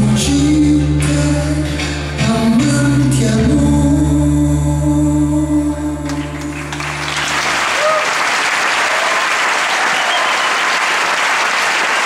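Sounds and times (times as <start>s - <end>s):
band holding last notes: 6.0s - 10.2s
audience applauding: 6.1s - 12.0s.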